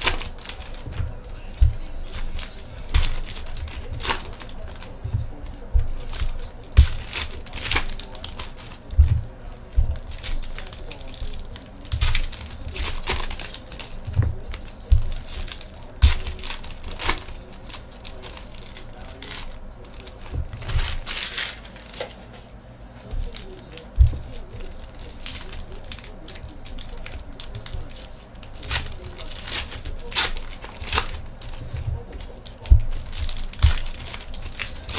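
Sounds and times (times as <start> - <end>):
foil wrappers crinkling and tearing: 0.0 - 34.9
soft low thumps: 0.8 - 10.6.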